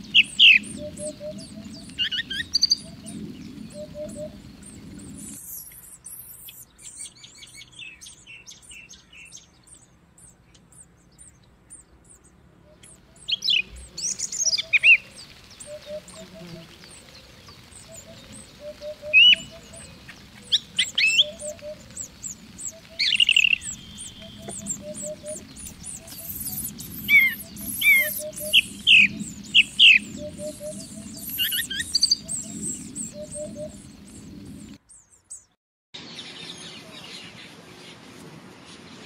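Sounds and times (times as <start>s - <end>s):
hoopoe calling: 0.0s - 6.6s, 12.7s - 34.8s
small birds chirping and whistling: 0.0s - 38.0s.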